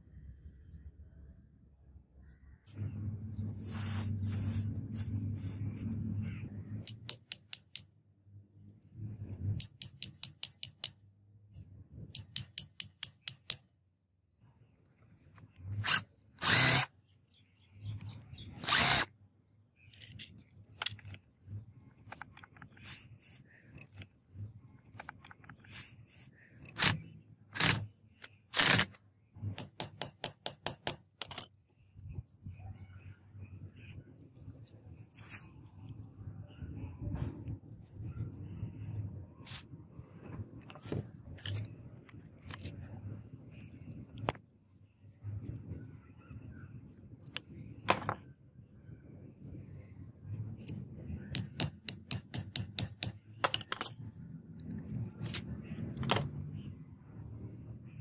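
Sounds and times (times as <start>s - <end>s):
low steady hum: 0.0s - 6.9s
metal rod scraping and clicking: 12.1s - 13.6s
screwdriver scraping rust: 12.1s - 13.6s, 15.6s - 16.9s, 18.0s - 19.1s, 19.9s - 21.3s, 22.0s - 24.2s, 24.9s - 29.0s, 40.7s - 42.9s.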